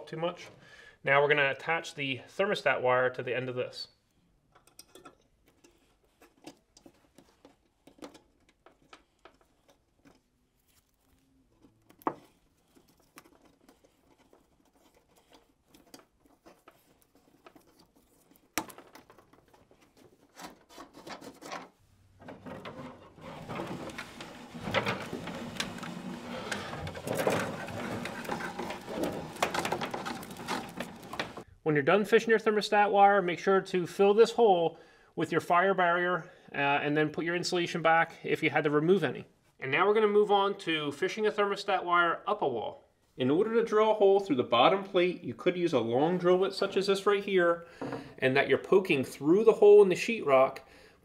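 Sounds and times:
wire rustling: 0:04.7 - 0:31.5
crackling rustle: 0:05.8 - 0:21.8, 0:23.0 - 0:31.5.

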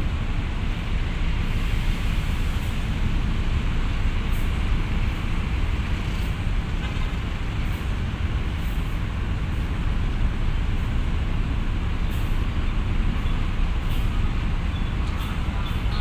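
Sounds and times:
bus diesel engine rumbling: 0:00.0 - 0:16.0.

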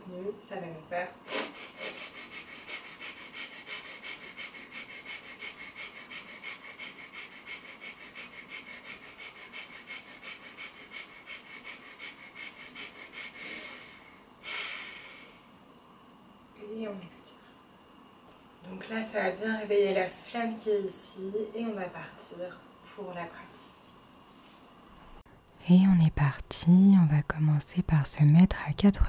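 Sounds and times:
long deep breath: 0:01.3 - 0:15.6
rapid forceful nasal breathing: 0:01.3 - 0:15.6.

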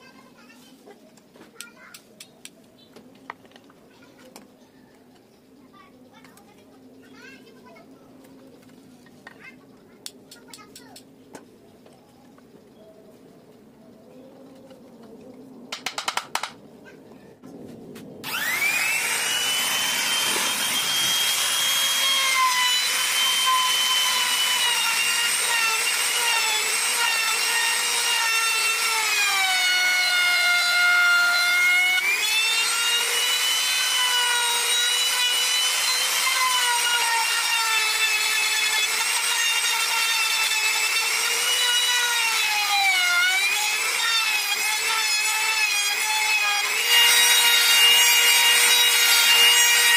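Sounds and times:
electric router cutting wood: 0:18.2 - 0:49.9.

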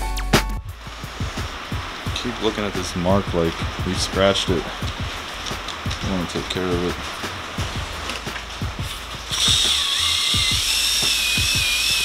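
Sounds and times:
electric polisher motor whine: 0:09.3 - 0:12.0.

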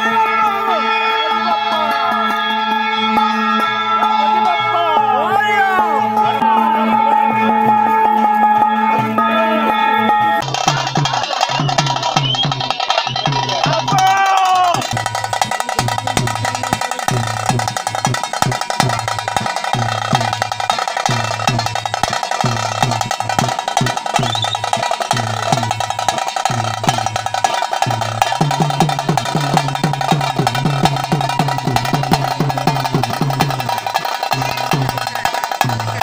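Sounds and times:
drums beating a steady rhythm: 0:00.0 - 0:36.0.

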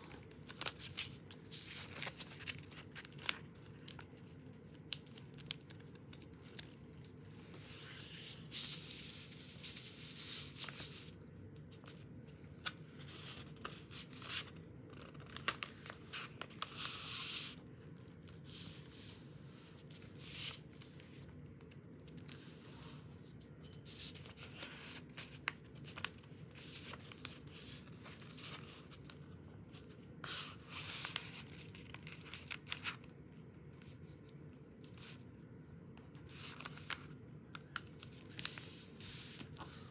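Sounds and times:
paper rustling and crinkling: 0:00.0 - 0:35.3, 0:35.9 - 0:39.9.

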